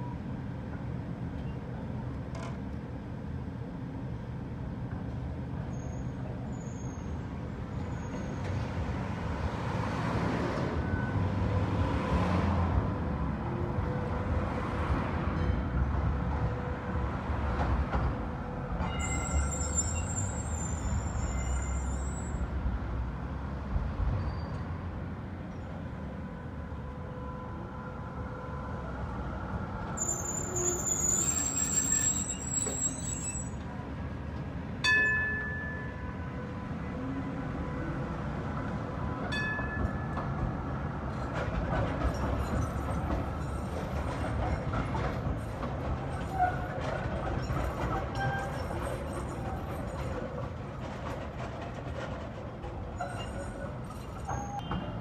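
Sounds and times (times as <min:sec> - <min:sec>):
street traffic: 0:00.0 - 0:55.0
tram passing: 0:00.0 - 0:55.0
tram wheels squealing: 0:05.5 - 0:12.2, 0:15.4 - 0:22.7, 0:24.1 - 0:25.9, 0:29.8 - 0:34.0, 0:39.0 - 0:55.0.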